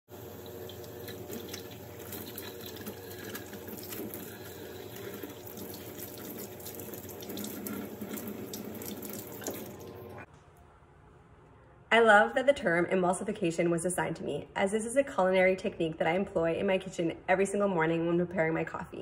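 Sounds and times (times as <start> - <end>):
faucet running into metal sink: 0.1 - 10.2.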